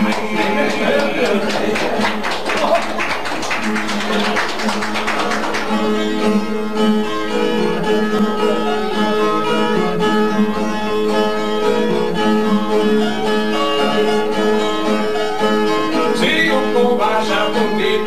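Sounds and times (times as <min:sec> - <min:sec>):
viola strumming and plucking: 0:04.7 - 0:18.0.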